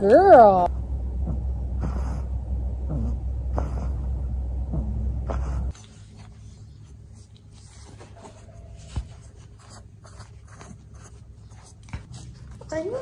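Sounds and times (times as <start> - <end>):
puppy scratching: 5.2 - 13.0.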